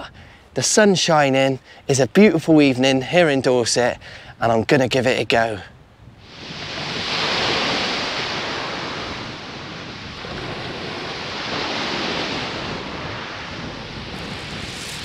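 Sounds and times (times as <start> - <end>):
waves washing on shingle beach: 6.2 - 15.0.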